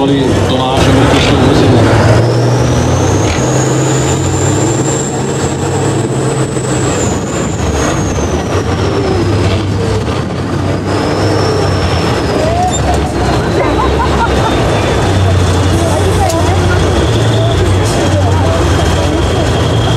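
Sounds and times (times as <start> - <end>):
truck diesel engine under load: 0.0 - 19.9.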